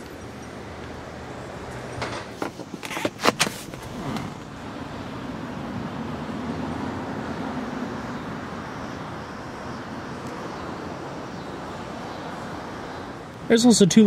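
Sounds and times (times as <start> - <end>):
car seat clicks and clunks: 2.3 - 4.6.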